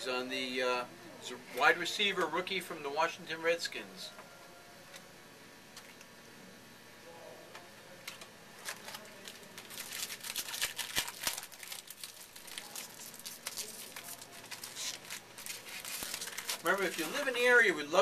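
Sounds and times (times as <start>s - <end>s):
foil wrapper crinkling and tearing: 8.1s - 17.7s.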